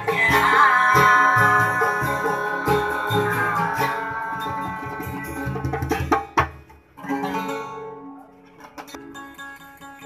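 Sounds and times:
person singing a long note: 0.0s - 5.3s
hand drum beats: 0.0s - 6.8s
acoustic guitars strumming: 0.0s - 10.0s.

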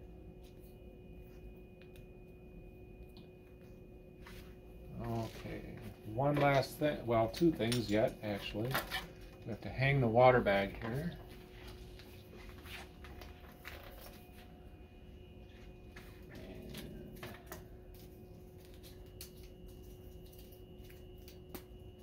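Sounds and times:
faint steady hum: 0.0s - 22.0s
plastic bag and tubing rustling: 10.4s - 14.6s.

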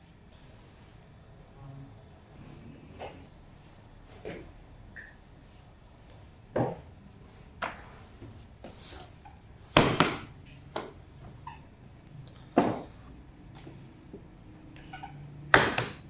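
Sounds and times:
knocks and thumps on work table: 6.5s - 6.9s, 12.6s - 13.0s.

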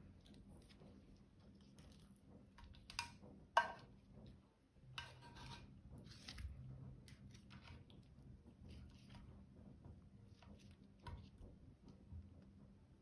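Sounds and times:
food scraping in baking dish: 3.6s - 9.3s.

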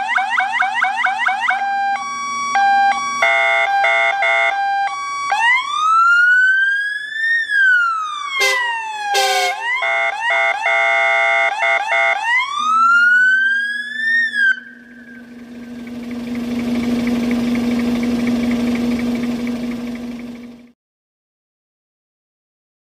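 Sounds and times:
electronic siren wailing: 0.0s - 19.7s
low hum: 14.6s - 20.7s.

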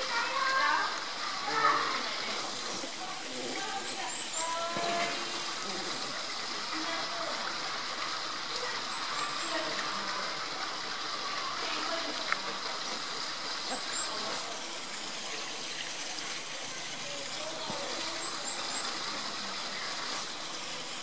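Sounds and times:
running water rushing: 0.0s - 21.0s.

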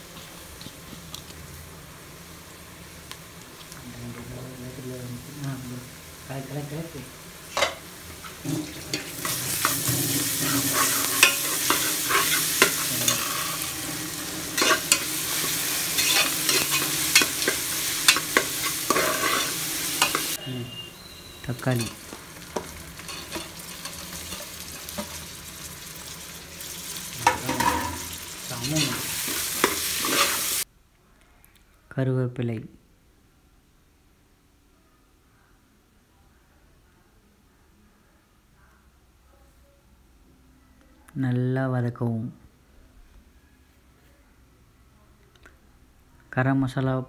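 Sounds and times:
onions sizzling in hot oil: 0.0s - 30.7s
ladle scraping pot: 7.6s - 13.8s, 14.4s - 20.4s, 22.6s - 25.2s, 27.2s - 30.6s.

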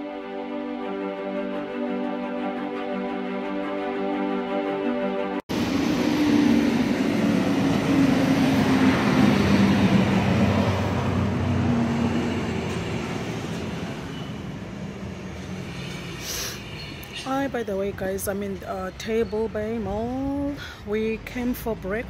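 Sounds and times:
background music: 0.0s - 5.7s
vehicle engine roar: 5.5s - 16.4s.

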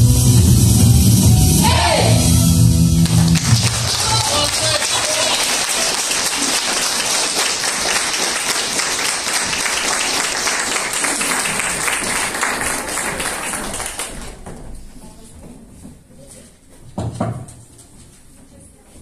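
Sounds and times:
audience applauding: 3.0s - 14.5s.

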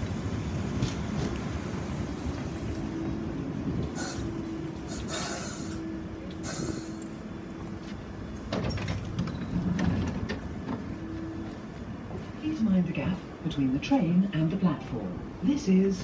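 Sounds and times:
train rumble and hum: 0.0s - 16.0s
short air hisses: 4.0s - 4.3s, 4.9s - 5.8s, 6.4s - 7.2s.

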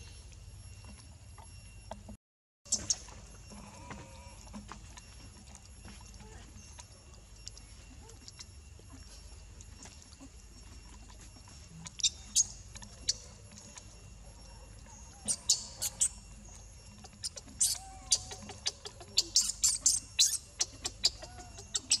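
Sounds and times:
baby monkey squealing: 15.1s - 16.3s, 17.0s - 22.0s.

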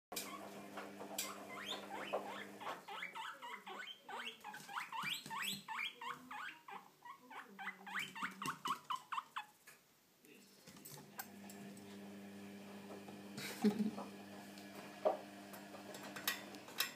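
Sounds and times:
guinea pigs squeaking: 0.1s - 9.6s.

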